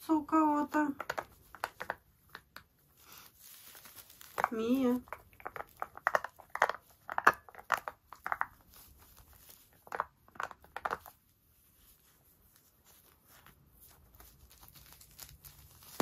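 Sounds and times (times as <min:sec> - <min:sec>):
plastic pad crinkling: 0:00.3 - 0:16.0
puppy chewing rubber ball: 0:01.0 - 0:03.0, 0:03.9 - 0:11.6.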